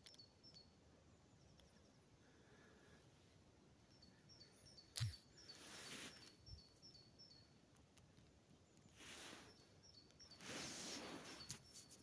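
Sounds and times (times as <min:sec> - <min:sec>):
songbird chirping: 0:00.0 - 0:12.0
soft rustles: 0:08.2 - 0:12.0.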